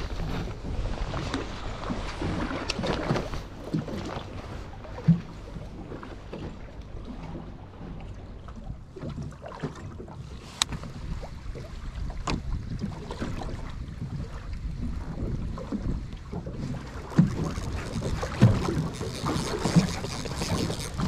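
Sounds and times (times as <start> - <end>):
wind noise: 0.0 - 4.4, 10.6 - 21.0
water noise: 0.0 - 21.0.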